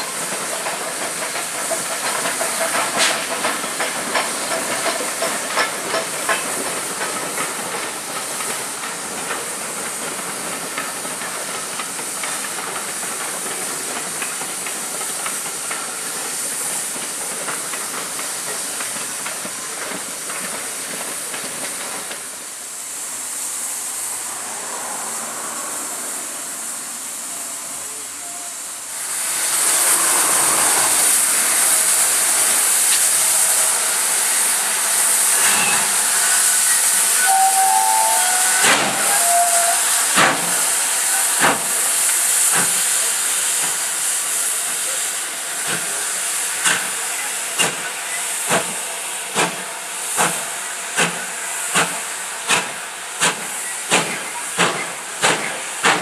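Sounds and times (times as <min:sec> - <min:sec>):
steam locomotive exhaust beats: 0:00.0 - 0:23.0, 0:27.4 - 0:56.0
loud steam hiss: 0:00.0 - 0:56.0
short whistle notes: 0:35.4 - 0:39.8.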